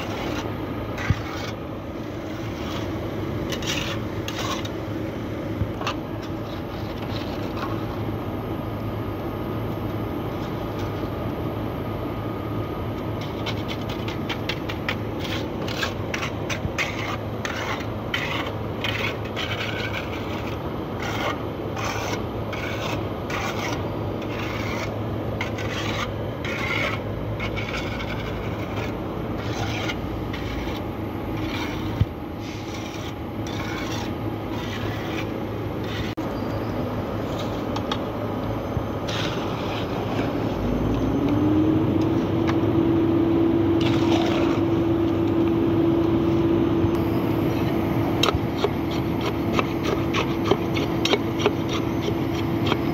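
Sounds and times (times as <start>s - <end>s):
metal scoop scraping concrete: 0.0s - 4.8s, 5.8s - 8.0s, 13.2s - 36.2s, 37.2s - 37.9s, 39.0s - 40.7s, 43.7s - 44.8s, 47.0s - 52.9s
low machine hum: 0.0s - 52.9s.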